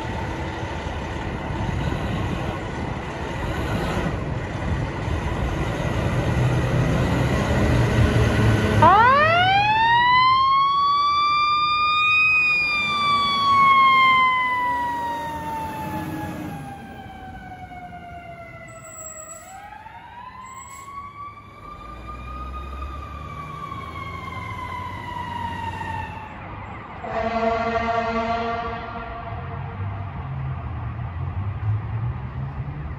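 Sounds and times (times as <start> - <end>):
fire truck siren wailing: 6.8 - 31.3.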